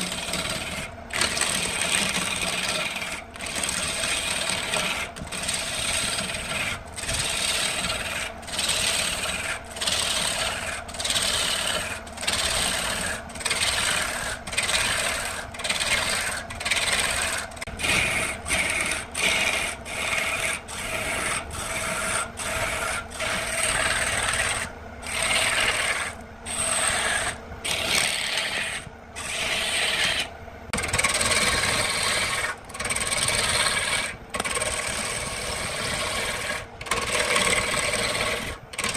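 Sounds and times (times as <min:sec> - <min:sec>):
lathe gouge scraping wood: 0:00.0 - 0:38.9
lathe motor hum: 0:00.0 - 0:38.9.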